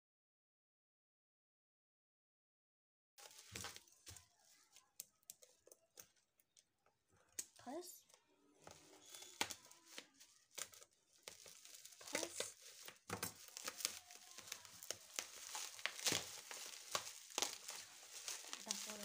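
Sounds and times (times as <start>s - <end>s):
bubble wrap crinkling: 3.2s - 19.0s.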